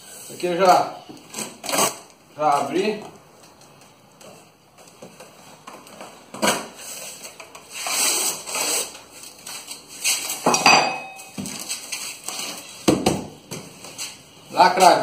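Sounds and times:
metallic clink: 10.5 - 11.4.

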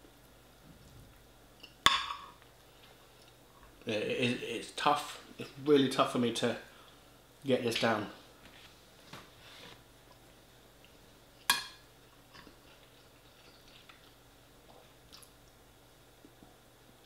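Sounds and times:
quiet chewing: 12.1 - 15.6.

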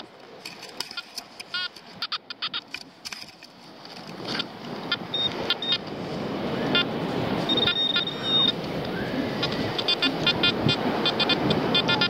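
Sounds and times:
metal detector beeps: 0.8 - 2.7, 4.3 - 5.8, 6.7 - 12.0.

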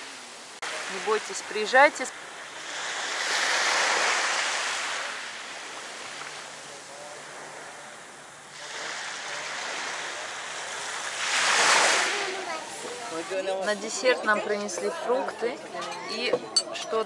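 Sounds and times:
waves washing on pebble beach: 0.0 - 14.0.

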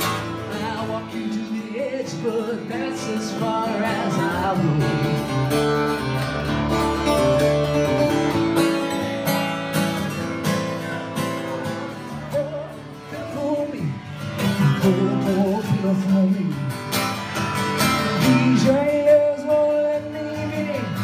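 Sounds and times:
person singing: 0.0 - 5.7, 10.6 - 16.8, 17.9 - 21.0
acoustic guitar strumming: 0.0 - 21.0.

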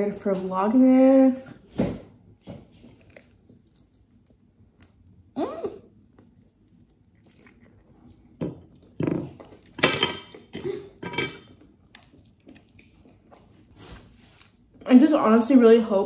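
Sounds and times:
food containers and utensils clattering: 8.4 - 11.6.

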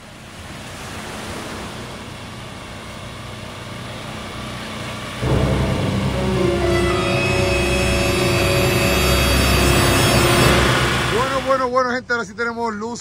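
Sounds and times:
music: 5.2 - 11.5.

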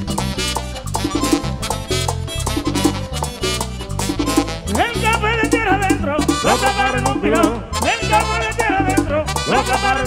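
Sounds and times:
latin dance band music: 0.0 - 10.0
person singing: 4.8 - 10.0.

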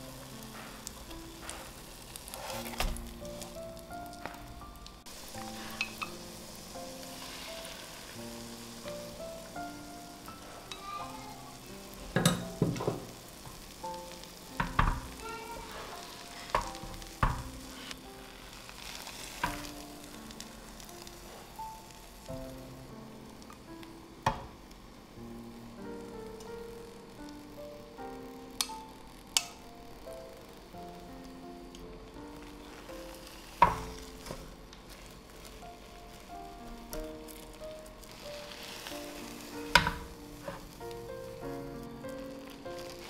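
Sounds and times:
oil sizzling in frying pan: 0.0 - 43.0
quiet background melody: 0.0 - 43.0
utensils clicking and scraping pan: 0.3 - 3.6, 5.3 - 8.2, 10.3 - 13.6, 14.5 - 21.7, 38.3 - 40.7.

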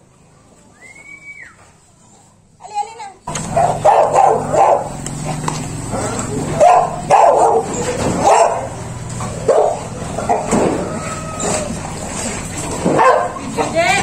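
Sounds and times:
dog barking: 3.3 - 10.6, 12.8 - 13.5.

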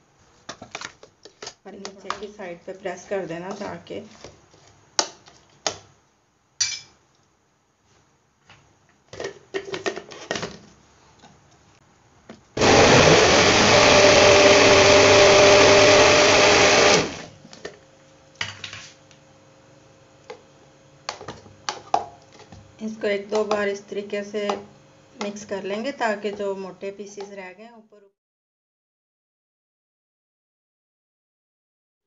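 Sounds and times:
blender running: 12.6 - 17.4.

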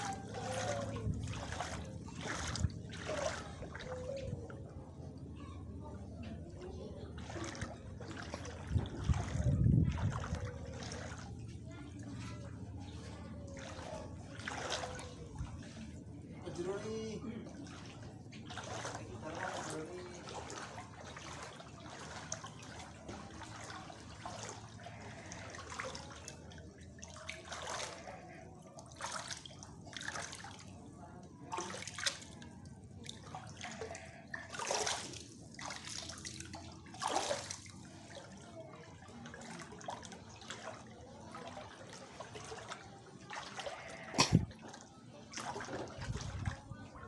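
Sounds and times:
footsteps splashing in water: 0.0 - 4.3, 7.1 - 11.6, 12.2 - 16.0, 17.4 - 47.0.

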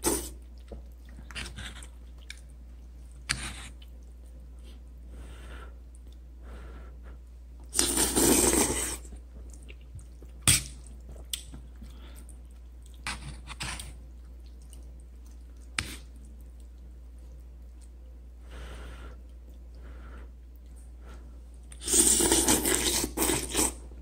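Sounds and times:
chewing: 0.3 - 4.4, 7.6 - 13.2, 13.8 - 18.2
noodles slurped loudly: 7.7 - 9.0.

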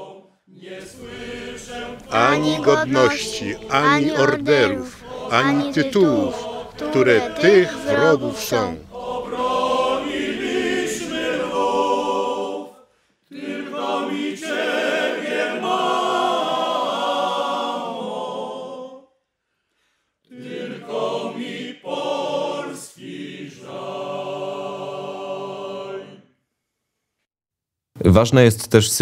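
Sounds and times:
choir singing a cappella: 0.0 - 19.1, 20.3 - 26.3.

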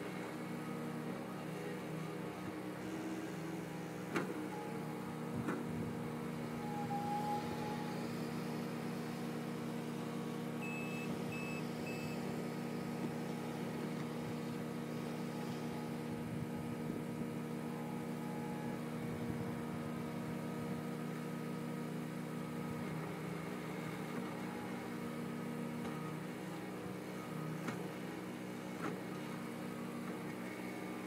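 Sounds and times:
loader engine running: 0.0 - 31.0
reversing alarm beeps: 6.5 - 8.5, 10.6 - 12.3.

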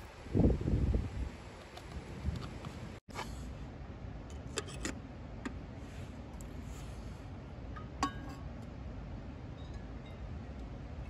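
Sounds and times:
cookware clinking: 7.8 - 8.5
kettle and cup ringing: 7.8 - 8.5.

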